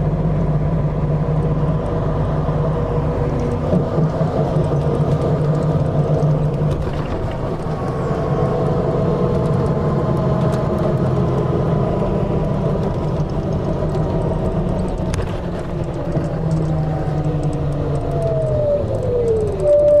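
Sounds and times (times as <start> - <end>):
engine drive tones: 0.0 - 20.0
vehicle running rumble: 0.0 - 20.0
whine sliding down in pitch: 16.8 - 20.0.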